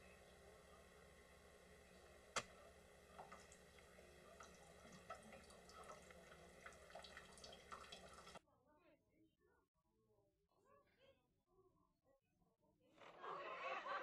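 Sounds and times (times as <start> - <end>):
ticks and drips at plastic spigot: 3.1 - 8.4.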